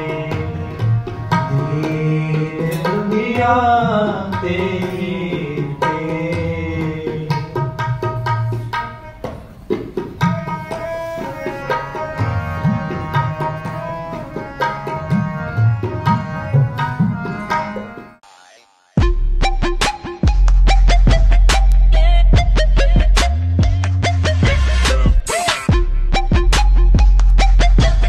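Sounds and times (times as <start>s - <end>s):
tabla strokes: 0.0s - 21.8s
bass drum tones: 19.0s - 28.0s.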